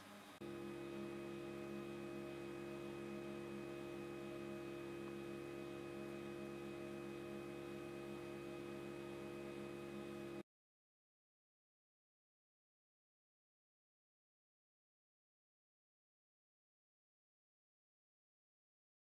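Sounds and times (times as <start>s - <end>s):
low pitched hum: 0.2s - 10.4s.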